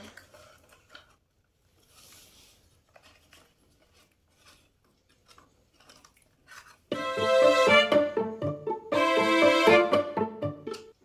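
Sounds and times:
light clicks and scrapes: 0.0s - 6.9s.

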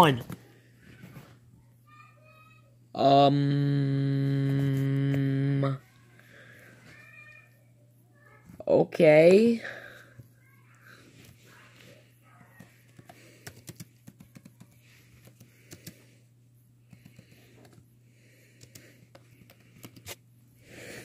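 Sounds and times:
low electrical hum: 0.0s - 21.0s
keyboard typing: 12.3s - 16.1s, 16.8s - 17.8s, 18.6s - 20.2s.

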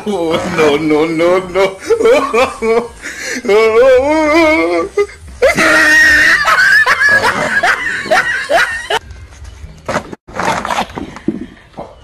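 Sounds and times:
person laughing: 0.0s - 9.0s
person squealing: 3.4s - 7.4s.

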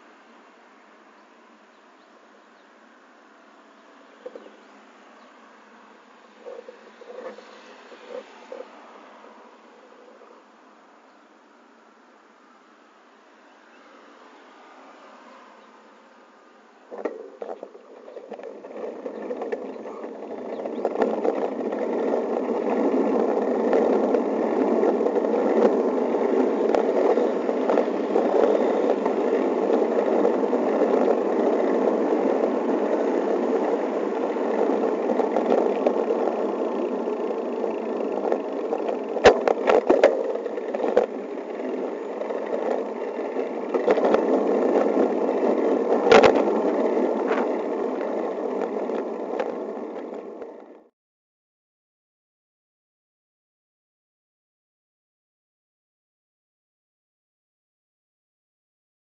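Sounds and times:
bicycle tyre and road noise: 0.0s - 50.9s
sharp rattles: 16.9s - 50.8s.

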